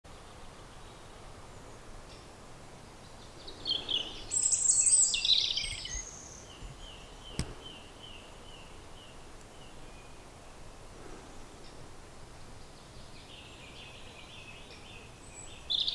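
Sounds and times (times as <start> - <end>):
outdoor background hiss: 0.1 - 15.9
songbird singing trilled phrases: 3.0 - 10.6, 12.4 - 15.9
sharp click: 7.3 - 7.6.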